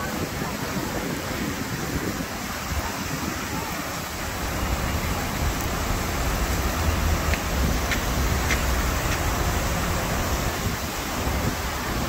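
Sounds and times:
waterfall rushing: 0:00.0 - 0:12.0.

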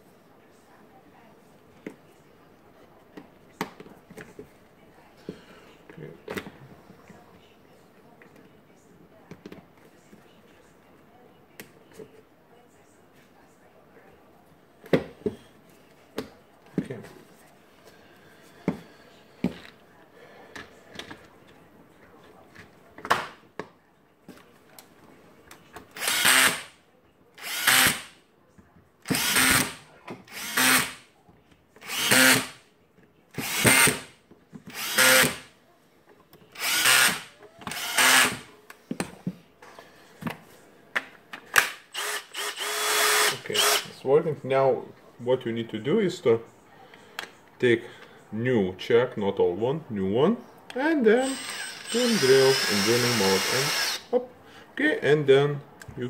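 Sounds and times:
cordless drill short bursts: 0:26.0 - 0:26.7, 0:27.4 - 0:28.1, 0:29.2 - 0:31.0, 0:31.8 - 0:32.5, 0:34.7 - 0:35.4, 0:36.6 - 0:38.4, 0:41.9 - 0:43.9, 0:51.2 - 0:54.1.

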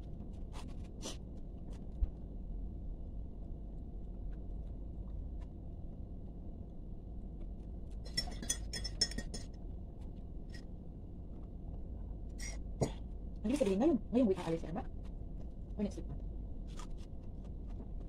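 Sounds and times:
low steady hum: 0:00.0 - 0:18.0
metal spoon clinking ceramic cup: 0:08.0 - 0:09.6.

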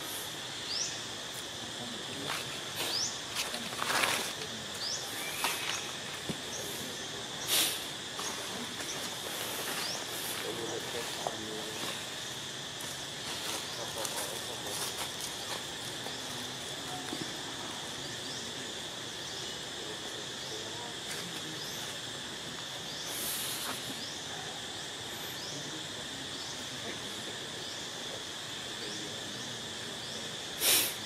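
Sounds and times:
high-pitched insect drone: 0:00.0 - 0:31.0
brief hiss: 0:07.4 - 0:07.9, 0:30.6 - 0:31.0.

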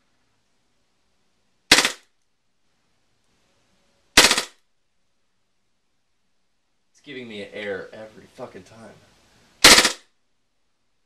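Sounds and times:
airsoft gun full-auto bursts: 0:01.7 - 0:02.0, 0:04.2 - 0:04.6, 0:09.6 - 0:10.0.

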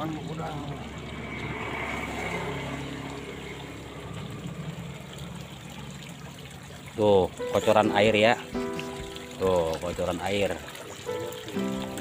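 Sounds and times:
water pouring into pond: 0:00.0 - 0:12.0.

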